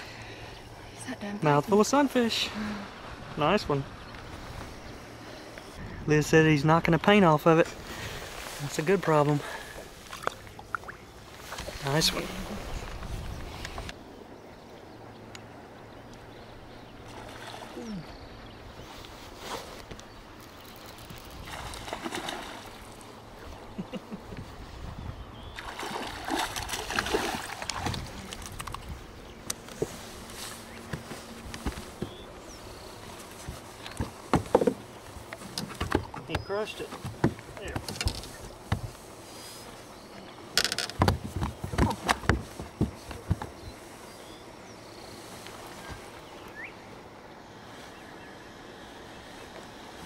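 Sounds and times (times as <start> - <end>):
quiet outdoor hiss: 0.0 - 50.0
fish splashing in water: 21.4 - 23.0, 25.6 - 28.6.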